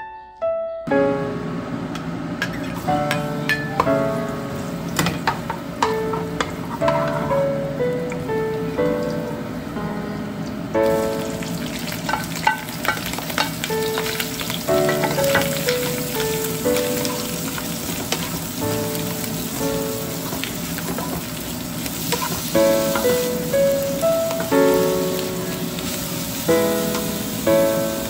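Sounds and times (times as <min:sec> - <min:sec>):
spatula clacking and scraping pan: 0:05.0 - 0:07.4, 0:12.1 - 0:14.2, 0:14.9 - 0:18.5, 0:20.2 - 0:21.4, 0:22.0 - 0:23.2
meat sizzling in a wok: 0:10.8 - 0:28.0.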